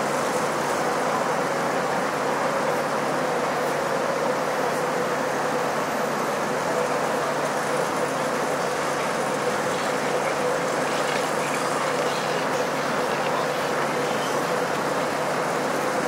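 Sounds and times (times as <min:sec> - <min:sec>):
traffic noise: 0:07.1 - 0:16.0
steady hum: 0:07.7 - 0:16.0.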